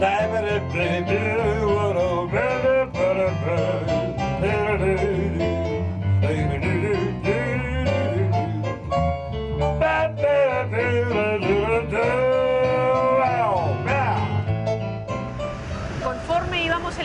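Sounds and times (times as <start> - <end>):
man singing into microphone: 0.0 - 8.9, 9.7 - 14.4.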